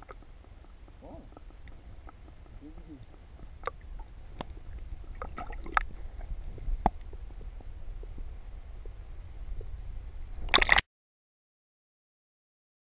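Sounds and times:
sharp clicks and knocks: 0.0 - 5.9
muffled underwater rumble: 0.0 - 10.8.

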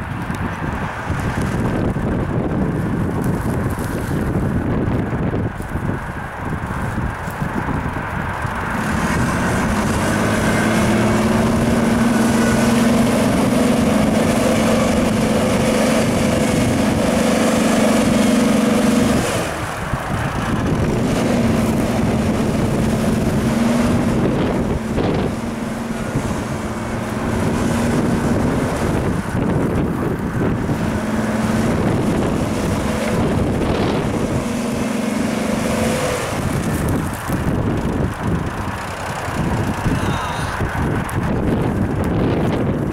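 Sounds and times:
suv engine revving hard: 8.7 - 38.4.

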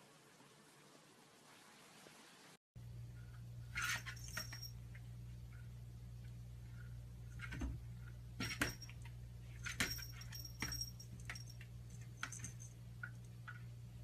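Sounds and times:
faint steady hum: 0.0 - 14.0
cat collar bell jingling: 3.8 - 4.8, 9.6 - 13.4.

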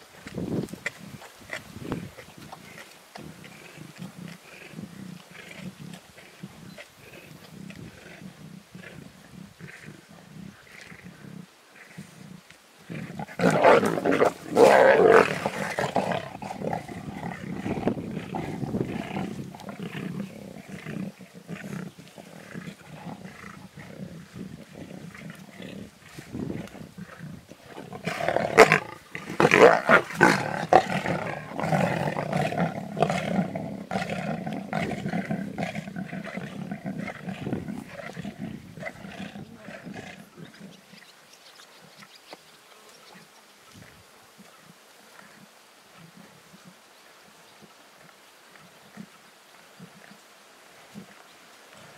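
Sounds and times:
lions snarling and growling: 0.2 - 41.1.

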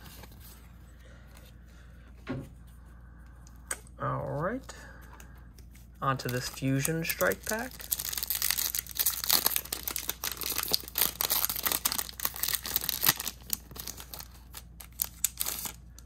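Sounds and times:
foil wrapper crinkling and tearing: 6.0 - 16.0.

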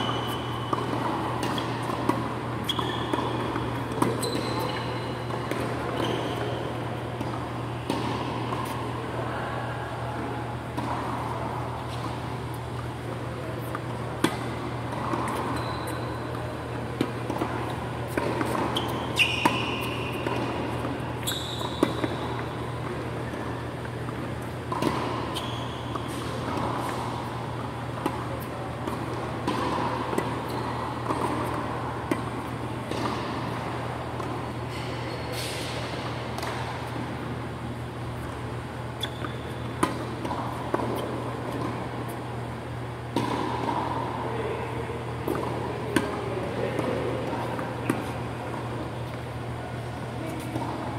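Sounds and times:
short high squeaks: 0.0 - 1.8, 2.6 - 5.2, 15.3 - 16.2, 18.7 - 20.3, 21.2 - 22.3, 25.2 - 26.3
low hum of fans: 0.0 - 50.9
tennis balls struck and bouncing: 0.0 - 50.9.

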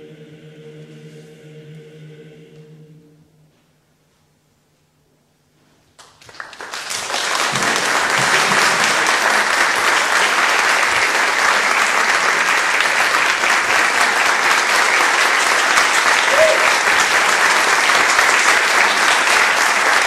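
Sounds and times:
audience applauding: 6.0 - 20.0.

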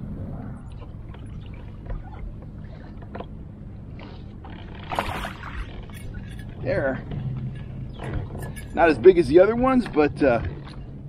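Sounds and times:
steady low rumble: 0.0 - 11.0
water lapping against kayak hull: 0.5 - 6.6.

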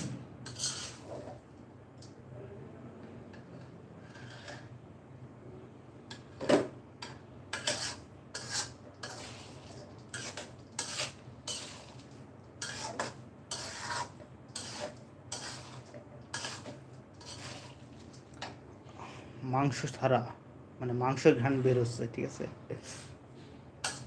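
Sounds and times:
metal spatula scraping a wok: 0.0 - 1.4, 3.4 - 4.7, 7.5 - 18.0.

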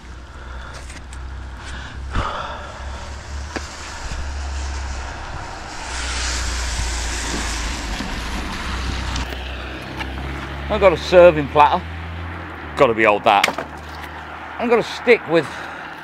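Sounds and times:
hiss of wind: 0.0 - 10.0
wind buffeting microphone: 1.0 - 10.6.

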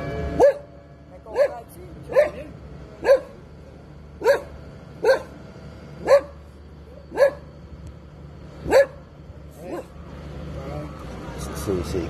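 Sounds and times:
dog barking: 0.4 - 0.7, 1.3 - 3.4, 4.2 - 5.4, 6.0 - 6.4, 7.0 - 7.5, 8.6 - 9.0, 9.6 - 10.0.

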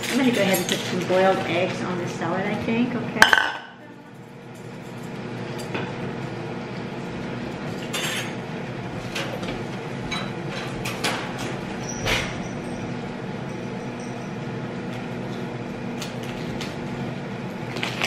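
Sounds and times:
kitchenware clinking: 0.0 - 1.6, 3.2 - 3.9, 7.8 - 8.4
fan hum: 0.0 - 18.0.

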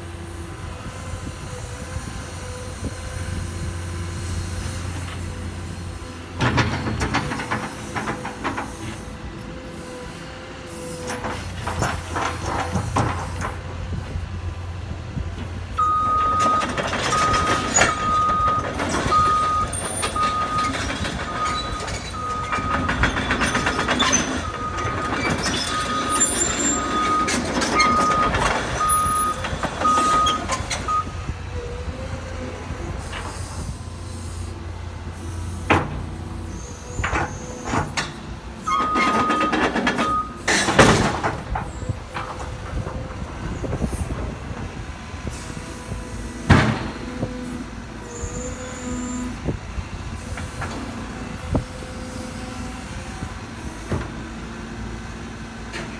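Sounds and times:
excavator engine and hydraulics: 0.0 - 55.9
travel alarm beeping: 15.8 - 23.0, 24.4 - 31.2, 38.7 - 40.4.

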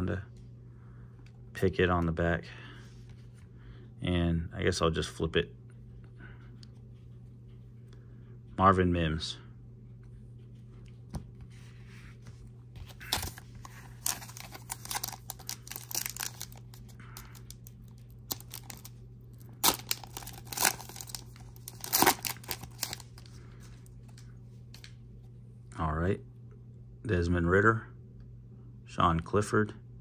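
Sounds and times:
foil wrapper tearing and crinkling: 13.0 - 23.4.

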